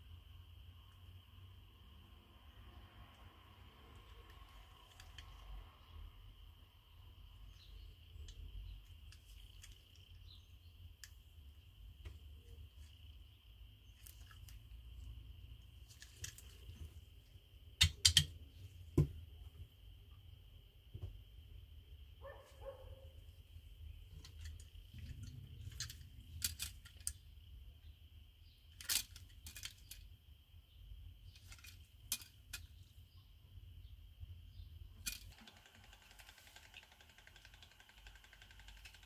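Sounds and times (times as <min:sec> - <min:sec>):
faint high-pitched hum: 0:00.0 - 0:39.0
toy cars and packaging clicking: 0:03.9 - 0:05.7, 0:07.5 - 0:11.2, 0:13.9 - 0:15.2, 0:15.8 - 0:16.9, 0:17.8 - 0:18.4, 0:24.1 - 0:27.4, 0:28.7 - 0:30.2, 0:31.3 - 0:32.9, 0:35.0 - 0:39.0.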